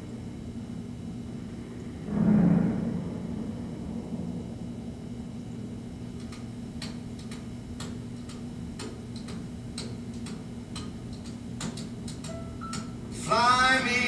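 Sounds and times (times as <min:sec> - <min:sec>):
low steady hum: 0:00.0 - 0:14.0
sharp ticks: 0:06.2 - 0:13.0.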